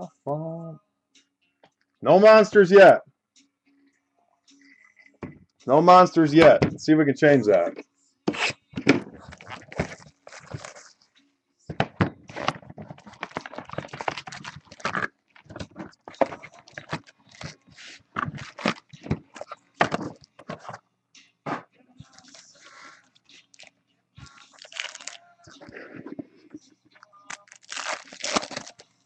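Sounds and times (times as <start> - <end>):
cards being handled: 8.3 - 11.0, 11.7 - 20.8, 22.1 - 26.3
card wrappers rustling: 9.1 - 11.0, 12.2 - 20.8, 22.1 - 25.7, 27.2 - 29.0.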